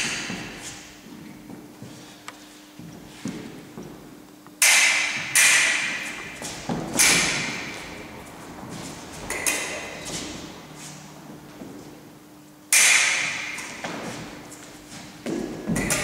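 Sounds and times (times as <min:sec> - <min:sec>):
fencing blades clashing: 0:00.0 - 0:01.1, 0:04.6 - 0:12.0, 0:12.7 - 0:16.0.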